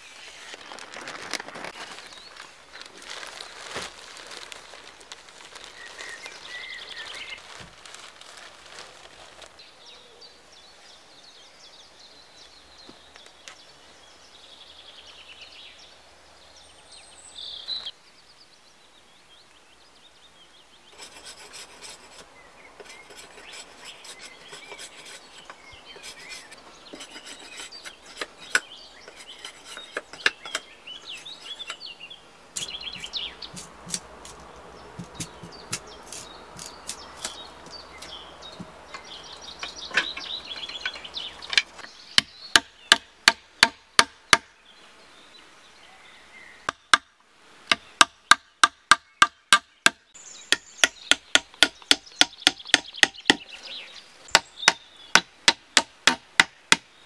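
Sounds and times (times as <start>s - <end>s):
birds chirping: 0.0s - 57.0s
blade scraping wooden stick: 21.0s - 31.8s.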